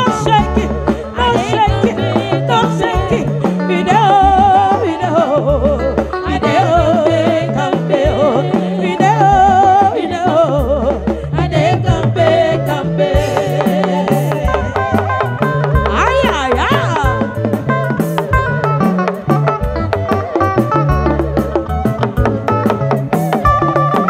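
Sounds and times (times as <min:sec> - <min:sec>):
women singing with vibrato: 0:00.0 - 0:18.0
bass line: 0:00.0 - 0:24.0
drum kit: 0:00.0 - 0:24.0.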